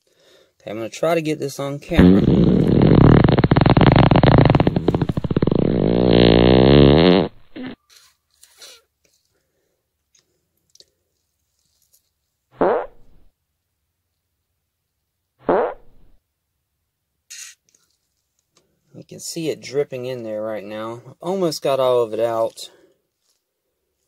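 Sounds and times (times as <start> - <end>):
pitched buzz of air through tube: 2.0 - 7.8, 12.6 - 13.2.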